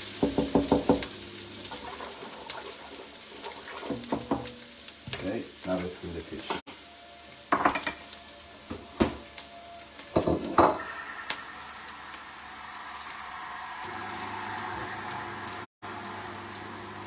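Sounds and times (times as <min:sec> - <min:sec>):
food sizzling in pans: 0:00.0 - 0:17.0.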